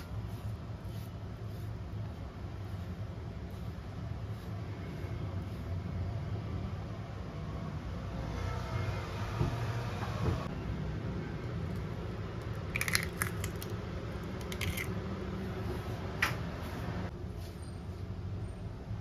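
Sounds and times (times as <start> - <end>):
low background hum: 0.0 - 19.0
eggshell cracking taps: 12.4 - 13.7.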